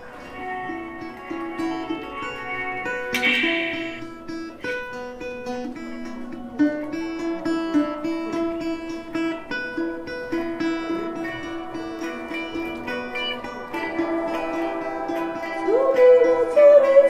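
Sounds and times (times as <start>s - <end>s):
balalaika plucking and strumming: 0.0s - 17.0s
low melody line: 0.0s - 17.0s.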